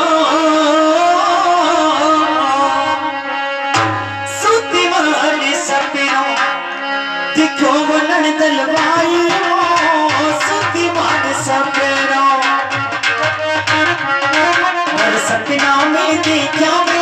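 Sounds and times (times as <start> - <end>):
dholak beating: 0.2 - 6.7, 7.4 - 17.0
sustained melody instrument: 1.6 - 5.0.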